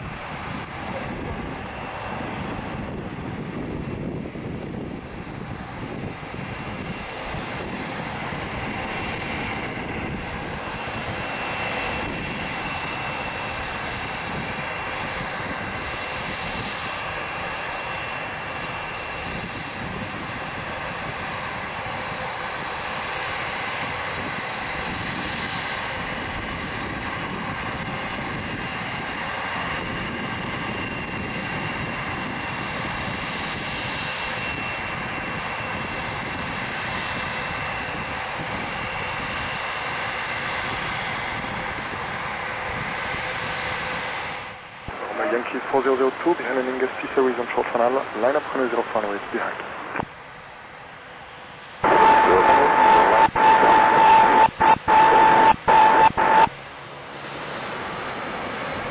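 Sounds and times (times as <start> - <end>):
jet engines idling: 0.0 - 31.7, 43.9 - 57.0.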